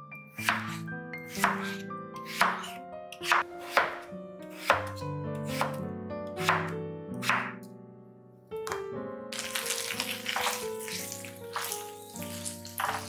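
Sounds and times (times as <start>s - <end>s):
soft music: 0.0s - 13.0s
knife chopping on wooden board: 0.4s - 5.8s, 6.4s - 7.6s, 10.3s - 11.8s, 12.7s - 13.0s.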